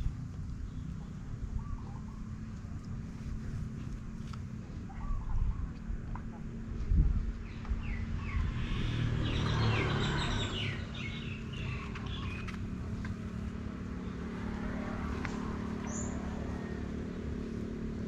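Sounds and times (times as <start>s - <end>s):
birds chirping: 0.0s - 3.0s, 4.7s - 6.6s, 7.2s - 18.0s
steady low hum: 0.0s - 9.0s.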